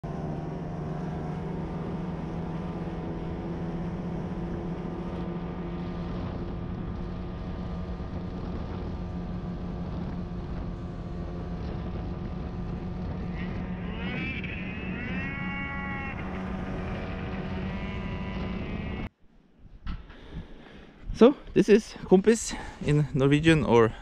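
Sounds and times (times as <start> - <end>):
snowmobile engine droning: 0.0 - 19.1.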